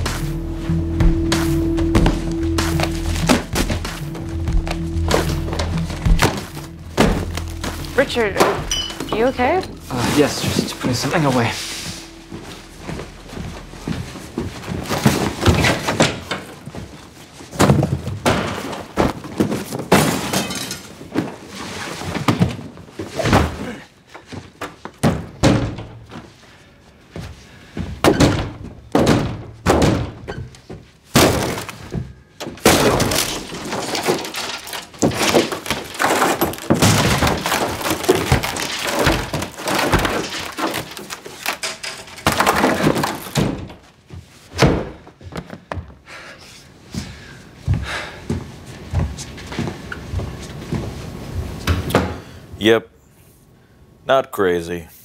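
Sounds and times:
kicking and striking wooden door: 1.0s - 9.1s, 25.0s - 26.2s, 27.8s - 43.8s, 44.5s - 45.1s.

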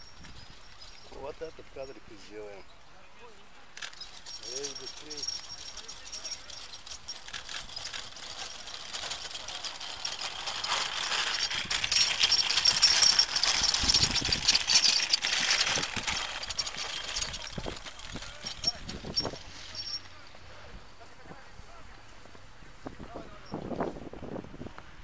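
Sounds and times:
stretcher dragged over grass: 3.8s - 21.2s.

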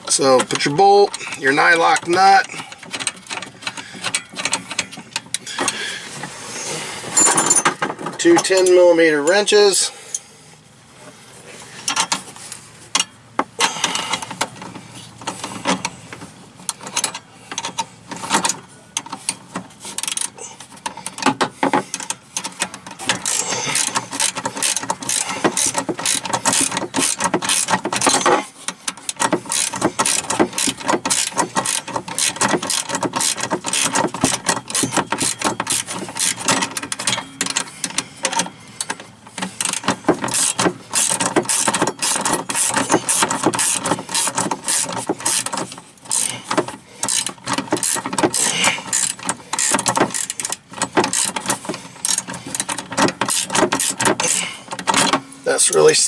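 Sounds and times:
wrench clicking: 20.0s - 55.1s.

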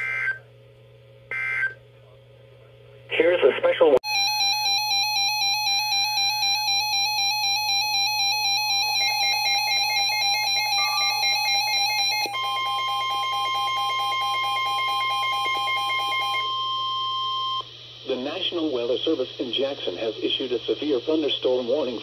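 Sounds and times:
warbling electronic alarm: 1.3s - 1.8s, 4.0s - 17.7s
continuous alert tone: 4.0s - 17.6s.

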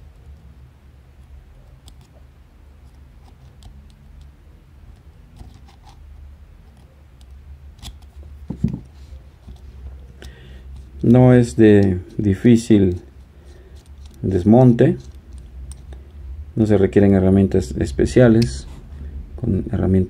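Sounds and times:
steady low hum: 0.0s - 20.0s
small metallic clicks and scraping: 1.2s - 2.2s, 2.8s - 6.0s, 6.6s - 8.3s, 12.9s - 16.2s.

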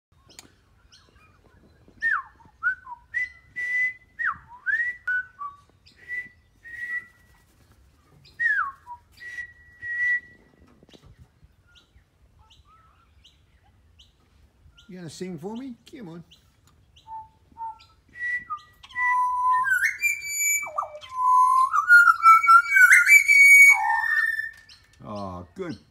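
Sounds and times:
person whistling: 17.2s - 24.6s.

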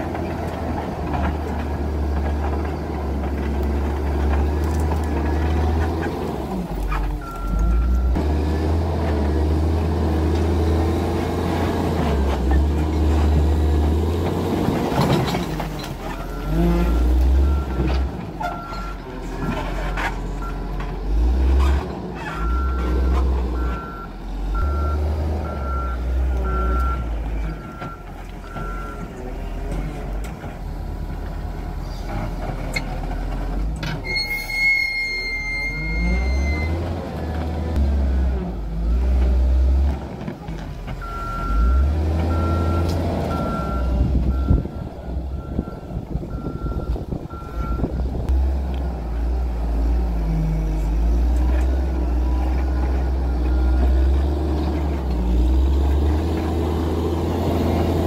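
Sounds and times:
heavy diesel machinery rumbling: 0.0s - 58.0s
high steady squeal: 34.0s - 36.8s
reversing alarm beeps: 41.0s - 48.0s.

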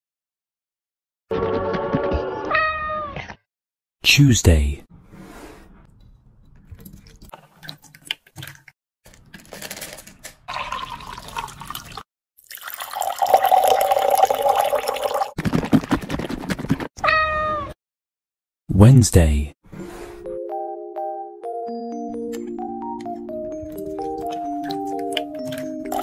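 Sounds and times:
liquid pouring over ice: 10.5s - 15.4s.

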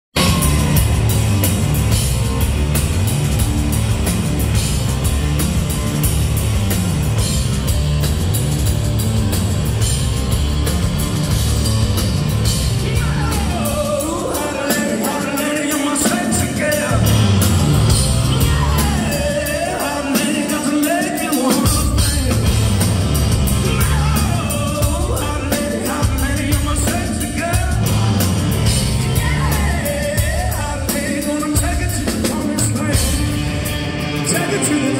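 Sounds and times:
live rock band playing: 0.1s - 34.9s
man singing: 12.8s - 22.9s, 23.5s - 33.5s, 34.2s - 34.9s.

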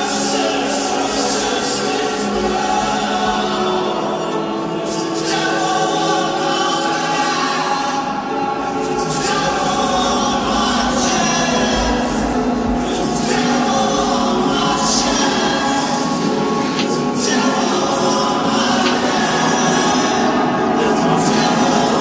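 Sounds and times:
slow choir-like music: 0.0s - 22.0s.

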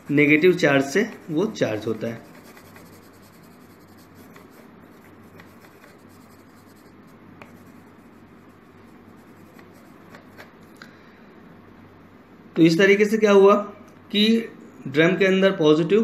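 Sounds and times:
pencil scratching on paper: 0.0s - 10.7s
faint low hum: 0.0s - 16.0s.

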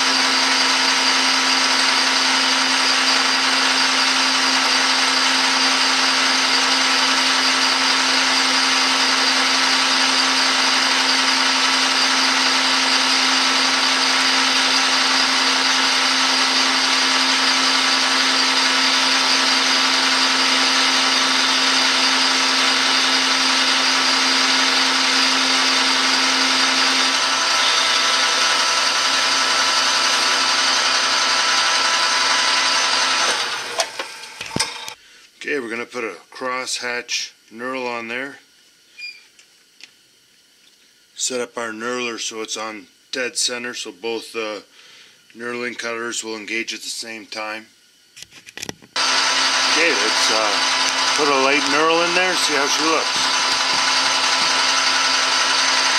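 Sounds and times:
metal lathe whine and hum: 0.0s - 35.0s, 49.0s - 55.9s.

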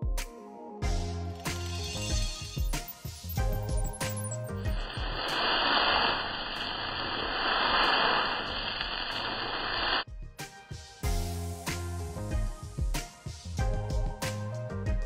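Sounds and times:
background music: 0.0s - 5.2s, 10.1s - 15.0s
food sizzling in a hot pan: 4.1s - 10.0s.

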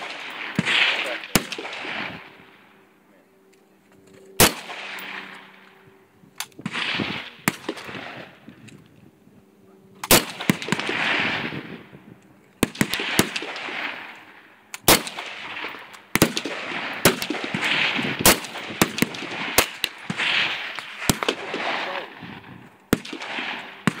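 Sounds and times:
rifle shots echoing: 0.0s - 2.9s, 4.4s - 8.5s, 10.0s - 11.9s, 12.6s - 24.0s.

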